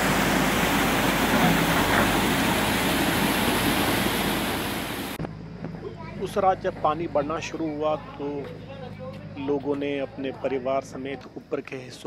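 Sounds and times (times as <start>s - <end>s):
stream rushing over rocks: 0.0s - 5.2s.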